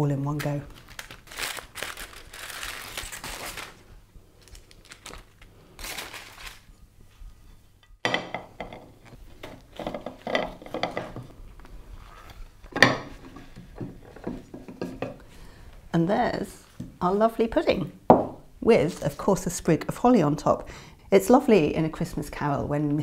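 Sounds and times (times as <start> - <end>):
aluminium foil crinkling: 0.2 - 6.8
china clinking and knocking: 7.8 - 9.0.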